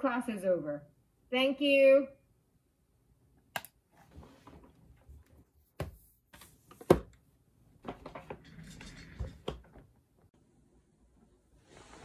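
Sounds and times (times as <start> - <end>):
knocks and clunks on a desk: 5.8 - 7.2.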